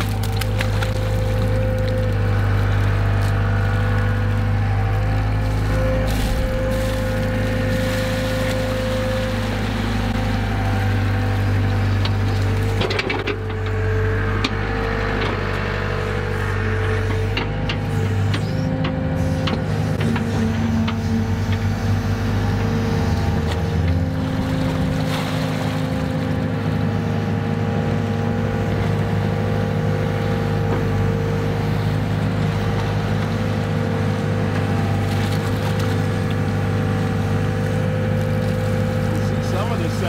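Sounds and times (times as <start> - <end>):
excavator engine and hydraulics: 0.0 - 40.0
higher hum shifting pitch: 0.1 - 12.0.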